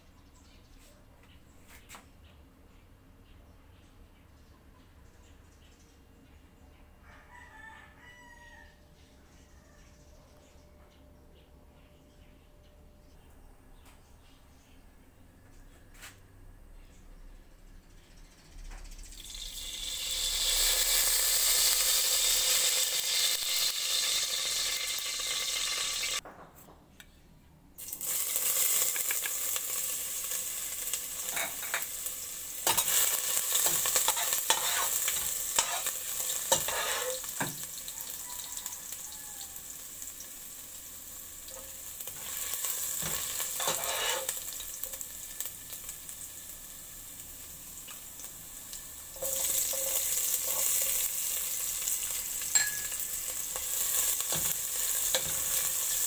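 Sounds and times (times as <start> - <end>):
garlic sizzling in oil: 19.0 - 26.2, 27.8 - 56.0
utensil scraping and tapping pot: 31.2 - 31.9, 32.6 - 37.7, 41.5 - 44.4, 49.2 - 51.0, 52.4 - 56.0.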